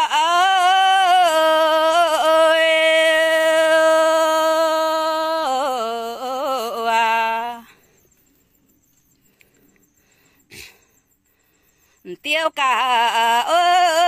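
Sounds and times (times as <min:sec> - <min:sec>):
woman singing unaccompanied: 0:00.0 - 0:07.9, 0:12.0 - 0:14.0.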